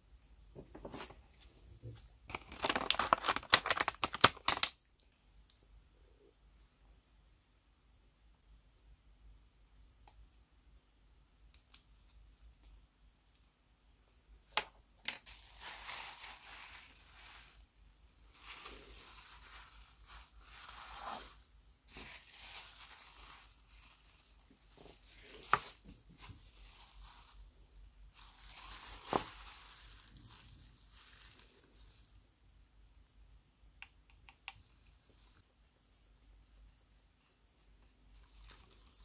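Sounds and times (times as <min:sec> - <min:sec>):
plastic bags crinkling: 0:02.3 - 0:04.8, 0:15.1 - 0:32.2, 0:38.2 - 0:39.0.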